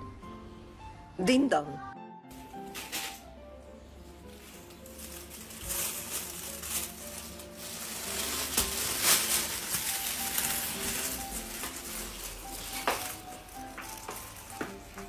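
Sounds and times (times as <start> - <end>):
plastic bag crinkling: 2.4 - 3.3, 4.2 - 15.0.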